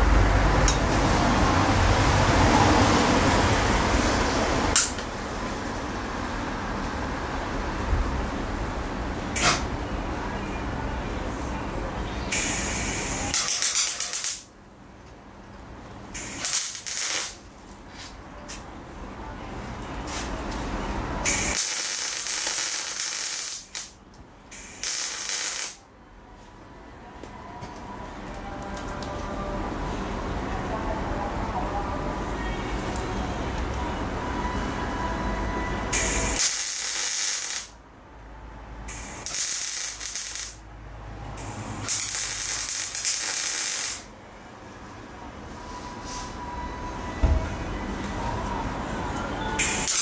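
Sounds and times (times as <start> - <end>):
arc welding: 12.3 - 14.5, 16.1 - 17.4, 21.2 - 25.8, 35.9 - 37.8, 38.9 - 40.6, 41.4 - 44.1, 49.6 - 50.0.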